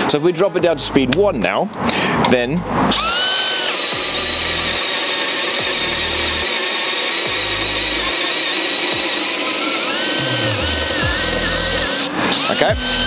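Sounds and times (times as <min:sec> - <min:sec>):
drill boring through timber: 0:02.9 - 0:13.0.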